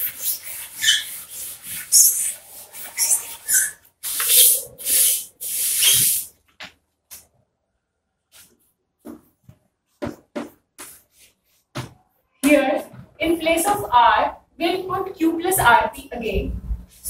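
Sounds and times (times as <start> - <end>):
chalk writing on board: 0.0 - 6.3
duster rubbing chalkboard: 0.0 - 6.3.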